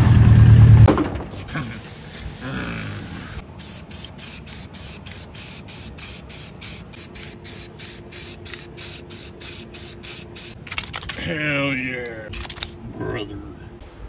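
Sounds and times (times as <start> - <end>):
spray paint can hissing: 1.4 - 11.1.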